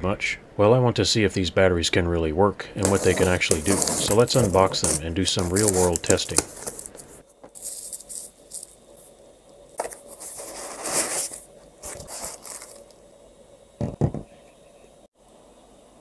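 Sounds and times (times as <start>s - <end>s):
cardboard and foam scraping: 2.8s - 8.3s, 9.9s - 12.8s
bubble wrap crinkling: 2.8s - 13.0s.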